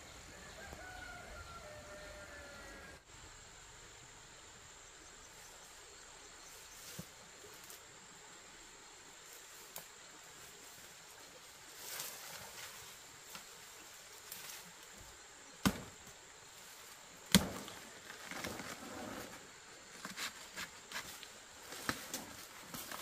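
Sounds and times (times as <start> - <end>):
rustling: 9.3 - 15.0, 16.6 - 23.0.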